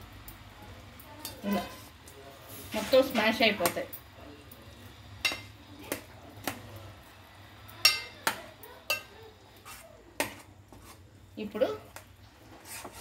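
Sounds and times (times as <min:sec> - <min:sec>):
spoon clinking against steel pot: 0:05.2 - 0:06.0, 0:07.8 - 0:09.1.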